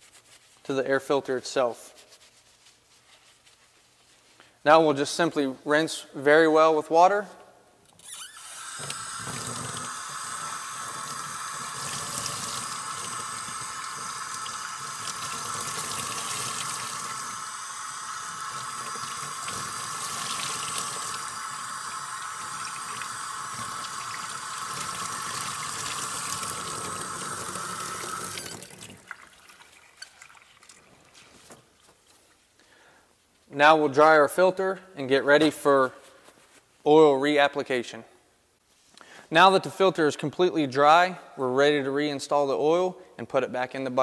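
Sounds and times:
water running from faucet: 8.4 - 30.8.

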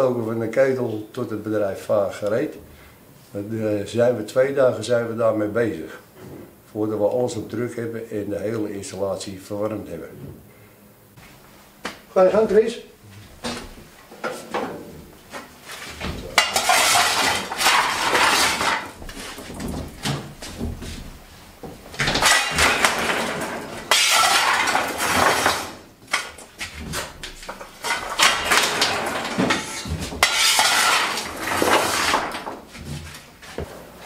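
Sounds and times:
coal shovel scraping and clattering: 14.2 - 20.9, 22.0 - 33.6.

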